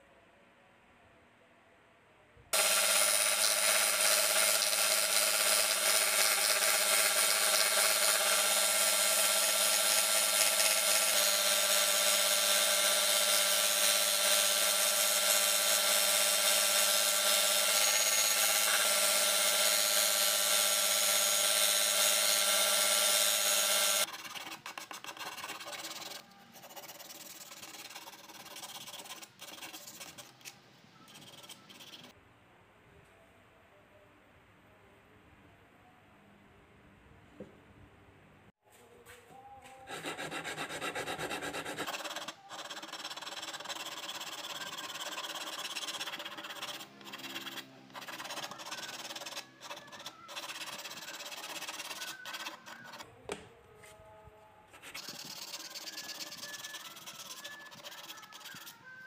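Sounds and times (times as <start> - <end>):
sandpaper rubbing on wood: 2.6 - 16.0, 23.8 - 30.5, 31.1 - 32.1, 39.9 - 53.0, 54.8 - 58.8
belt sander grinding wood: 2.6 - 24.1.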